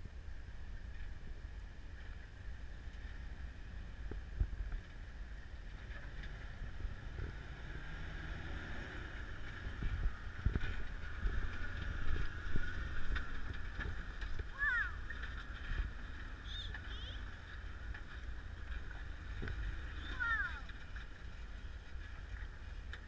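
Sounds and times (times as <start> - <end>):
vehicle engine running low: 0.0 - 23.0.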